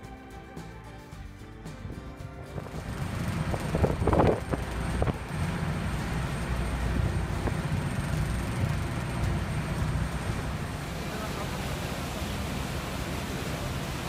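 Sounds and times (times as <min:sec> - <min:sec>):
wind buffeting microphone: 0:02.5 - 0:10.9
low drone of ship: 0:02.5 - 0:14.0
wake washing along hull: 0:02.6 - 0:14.0.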